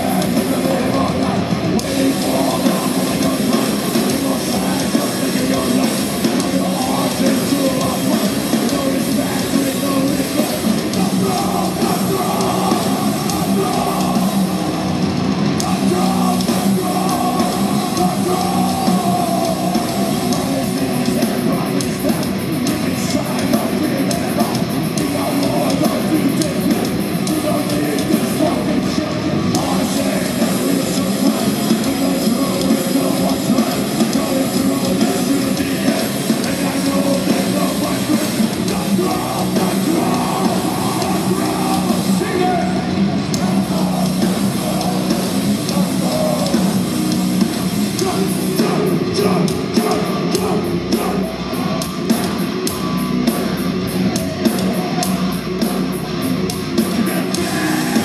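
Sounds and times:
distorted electric guitars: 0.0s - 58.0s
drum kit playing: 0.0s - 58.0s.

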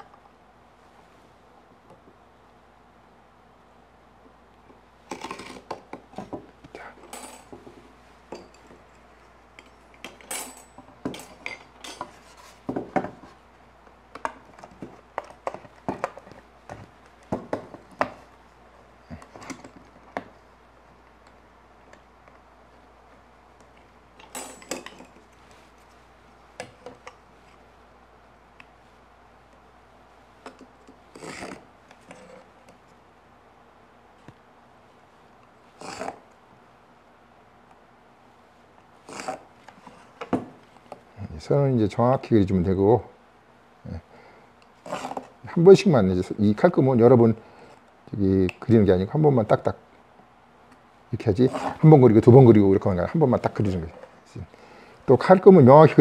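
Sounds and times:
marking knife scraping wood: 35.8s - 36.2s, 39.1s - 40.1s, 44.8s - 45.3s, 51.5s - 51.8s.

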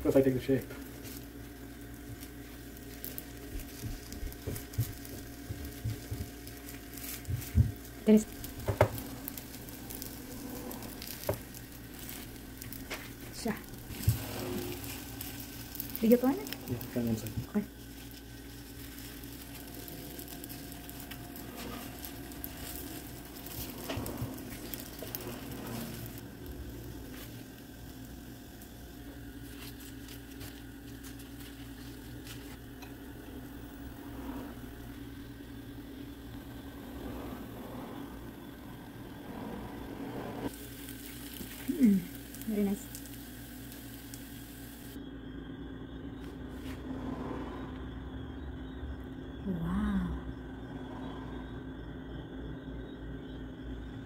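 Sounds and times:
dough sizzling on a griddle: 0.0s - 45.0s
low steady hum: 0.0s - 54.0s
plastic gloves crinkling: 0.1s - 32.8s, 40.5s - 45.0s.

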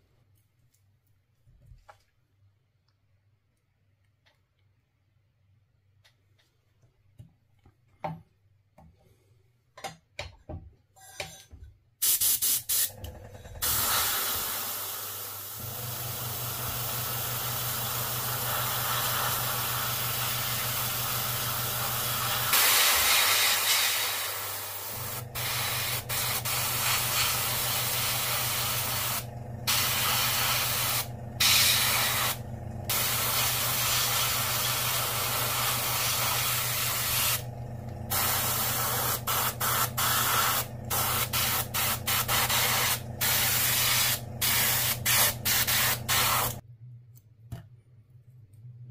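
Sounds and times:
airbrush spraying hiss: 12.0s - 12.9s, 16.2s - 37.4s, 38.1s - 46.6s.

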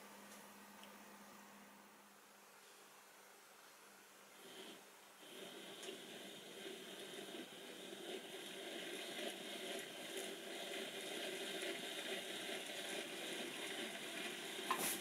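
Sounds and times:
model train motor whirring: 4.6s - 15.0s.

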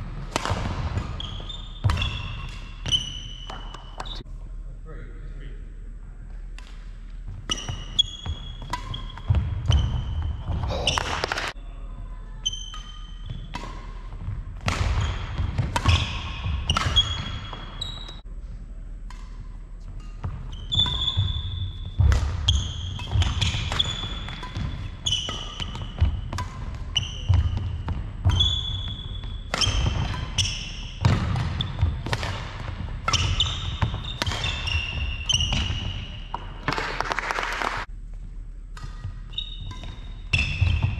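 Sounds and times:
racket striking shuttlecock: 0.0s - 4.2s, 7.4s - 11.6s, 12.6s - 18.1s, 19.0s - 37.4s, 38.7s - 40.9s
shoes squeaking on wooden floor: 1.0s - 4.2s, 7.3s - 11.6s, 14.9s - 18.2s, 20.2s - 32.0s, 32.7s - 36.6s.

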